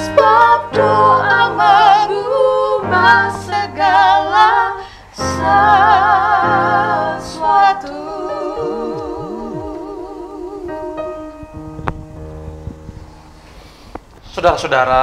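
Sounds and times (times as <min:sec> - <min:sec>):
women singing in duet: 0:00.0 - 0:11.6
electronic keyboard chords: 0:00.0 - 0:13.7.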